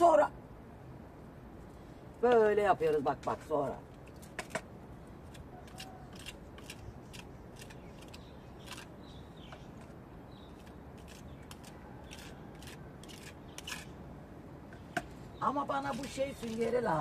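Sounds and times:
trowel scraping plaster: 5.6 - 8.9, 10.5 - 14.0.

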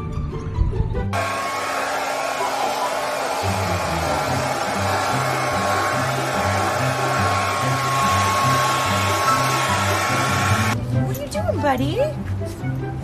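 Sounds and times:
background music: 0.0 - 13.0
hair dryer blowing: 1.2 - 10.8.

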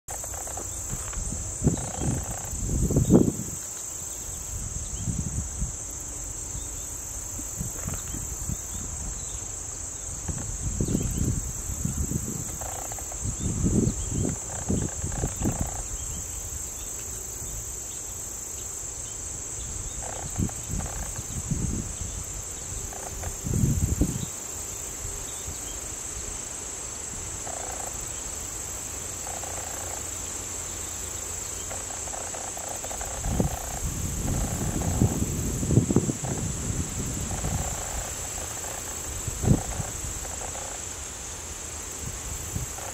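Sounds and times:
insects chorus: 0.1 - 42.9
wind buffeting microphone: 0.9 - 3.6, 4.5 - 5.8, 10.1 - 16.3, 19.7 - 24.3, 33.0 - 38.5, 39.1 - 40.3.

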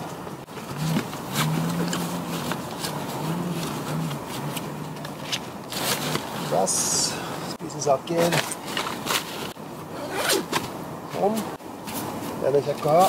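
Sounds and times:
backpack rustling and crinkling: 0.4 - 7.0, 8.1 - 13.0.

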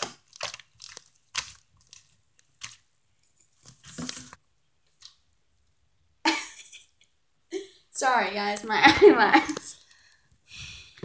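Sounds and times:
foam slime crackling: 0.0 - 4.4
sticky slime squelching: 0.0 - 5.7.

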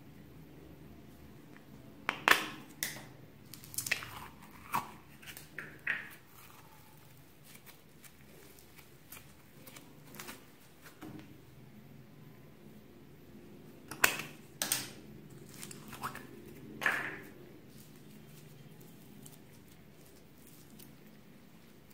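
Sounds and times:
foam bead slime crackling: 6.2 - 10.6, 17.2 - 21.9.

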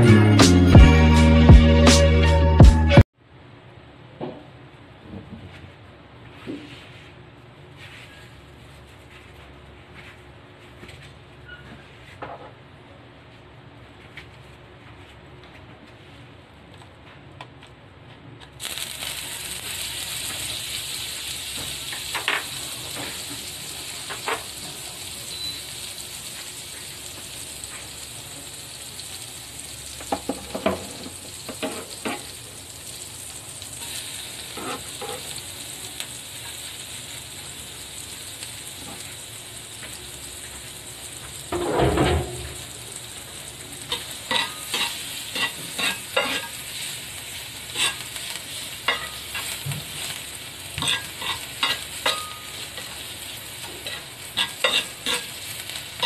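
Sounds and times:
butter sizzling in a pan: 18.6 - 56.0.

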